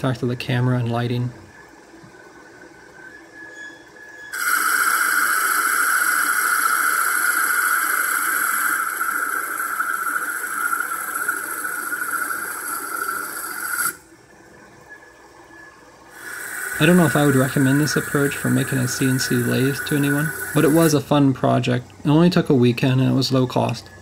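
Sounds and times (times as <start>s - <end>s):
lathe tool scraping spinning wood: 16.2s - 21.0s.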